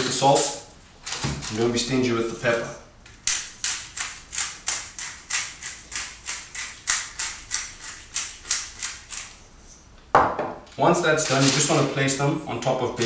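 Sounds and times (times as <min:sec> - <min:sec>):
pepper grinder scratchy strokes: 0:03.3 - 0:09.4.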